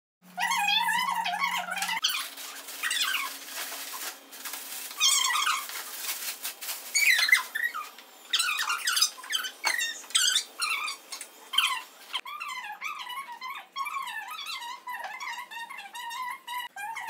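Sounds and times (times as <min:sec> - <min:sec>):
high-pitched squeaky voice: 0:00.4 - 0:03.3, 0:11.6 - 0:17.0.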